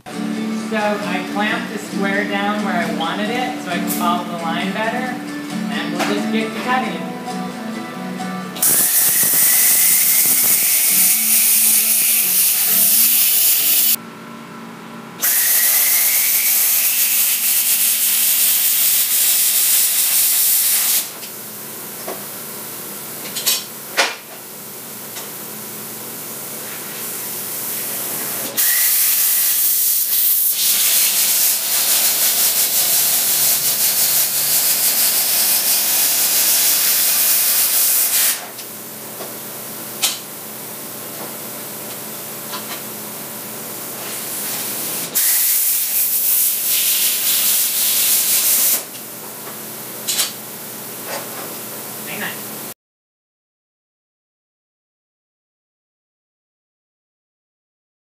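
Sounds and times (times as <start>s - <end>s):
plasma cutter hissing: 8.6s - 14.0s, 15.2s - 21.2s, 27.0s - 38.5s, 44.1s - 49.0s
thin rising whistle: 8.7s - 11.3s.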